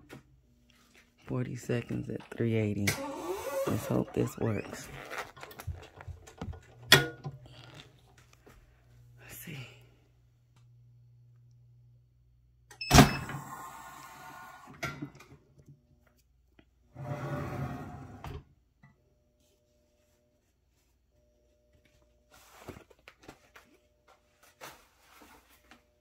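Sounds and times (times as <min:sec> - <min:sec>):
cover sheet rustling: 0:04.5 - 0:06.3, 0:21.8 - 0:26.0.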